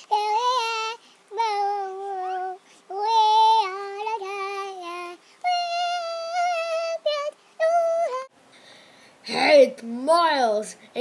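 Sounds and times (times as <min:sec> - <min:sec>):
boy singing: 0:00.0 - 0:08.3.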